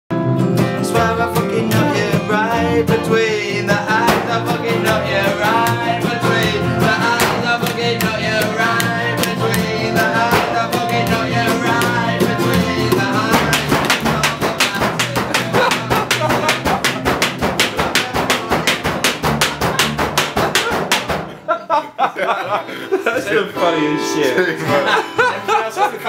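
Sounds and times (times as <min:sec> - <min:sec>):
double bass: 0:00.1 - 0:21.3
acoustic and electric guitars: 0:00.1 - 0:26.0
man singing: 0:00.6 - 0:20.8, 0:22.5 - 0:26.0
washing machine struck as drum: 0:03.9 - 0:04.5, 0:07.0 - 0:07.7, 0:10.3 - 0:10.7, 0:11.8 - 0:21.4.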